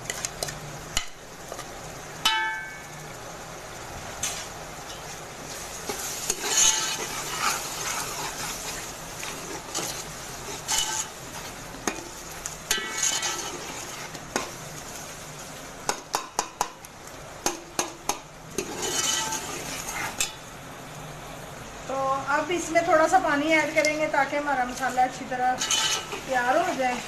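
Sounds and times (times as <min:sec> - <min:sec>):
oil sizzling: 0:00.0 - 0:27.0
steel ladle scraping a pot: 0:05.9 - 0:11.5, 0:12.7 - 0:14.2, 0:18.5 - 0:20.4, 0:25.6 - 0:26.7.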